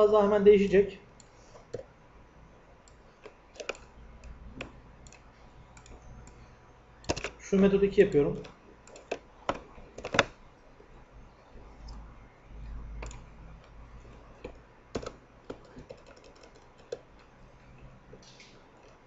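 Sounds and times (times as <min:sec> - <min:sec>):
keyboard keystrokes: 0:02.9 - 0:06.4, 0:07.0 - 0:07.4, 0:08.3 - 0:10.4, 0:13.0 - 0:17.3.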